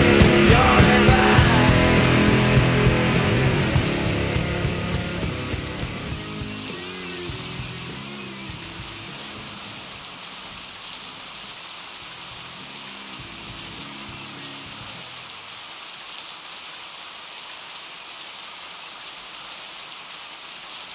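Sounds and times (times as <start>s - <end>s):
low music notes: 0.0s - 10.0s
heavy rain falling: 0.0s - 20.9s.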